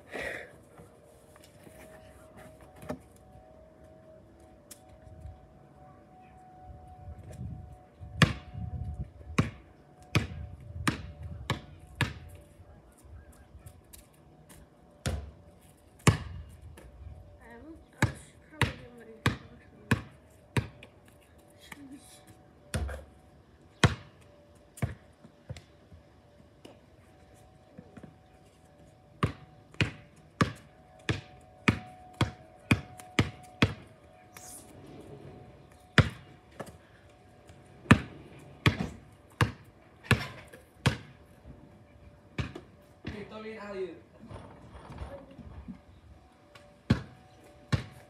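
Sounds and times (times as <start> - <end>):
basketball bouncing on concrete: 8.2 - 8.5, 9.4 - 12.3, 15.0 - 15.4, 16.0 - 16.4, 18.0 - 20.9, 22.7 - 23.1, 23.8 - 24.2, 24.8 - 25.6, 29.2 - 33.9, 36.0 - 36.7, 37.9 - 41.1, 42.4 - 43.3, 46.9 - 48.0.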